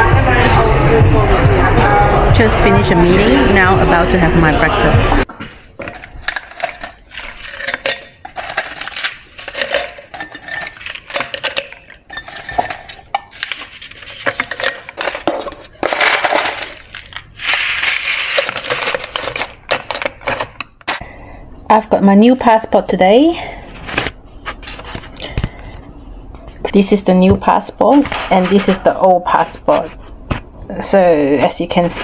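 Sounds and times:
dishes and cutlery clinking: 5.8s - 17.2s.

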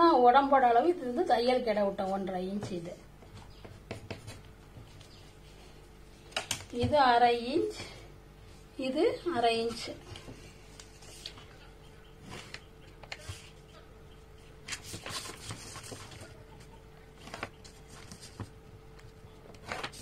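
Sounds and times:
faint steady hum: 0.0s - 20.0s
paper and ruler rustling: 9.7s - 11.5s, 14.6s - 20.0s.

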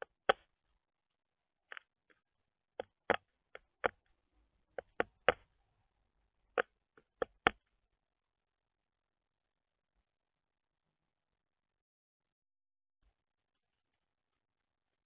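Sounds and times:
bird bill tapping on plastic: 4.8s - 5.5s, 6.6s - 7.6s.

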